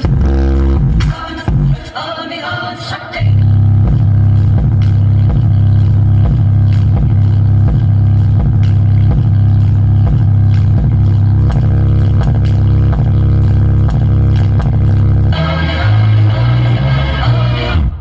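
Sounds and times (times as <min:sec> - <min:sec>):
bass-heavy music from speaker: 0:00.0 - 0:18.0.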